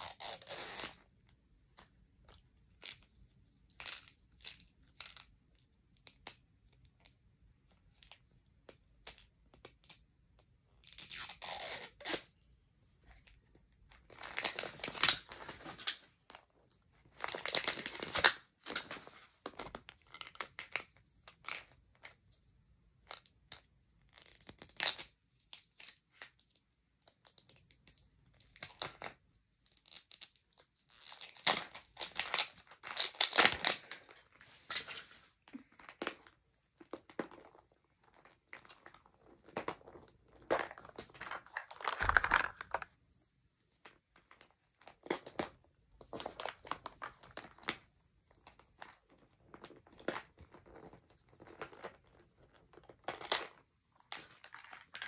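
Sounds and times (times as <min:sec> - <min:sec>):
plastic wrapping crinkling: 0:38.0 - 0:42.9.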